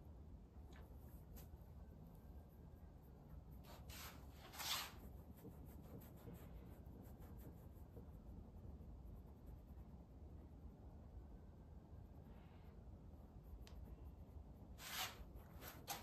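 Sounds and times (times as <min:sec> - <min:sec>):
brush scratching on canvas: 0:00.9 - 0:10.2, 0:13.3 - 0:16.0.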